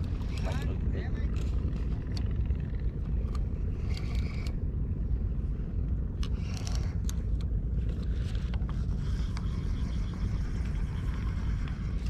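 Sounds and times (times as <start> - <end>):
faint clicks and light rattles: 0.0 - 4.6
wind buffeting microphone: 0.0 - 12.0.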